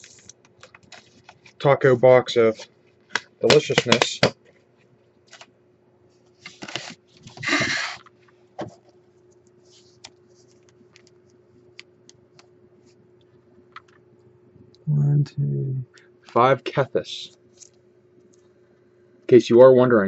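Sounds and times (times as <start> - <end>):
cards rustling and sliding: 6.4 - 8.1.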